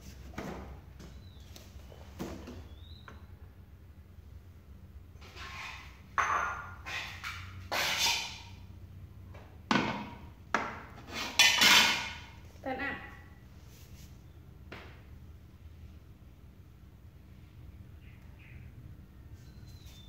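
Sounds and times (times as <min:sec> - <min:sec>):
metal cookware scraping: 0:05.2 - 0:08.5, 0:11.0 - 0:12.4.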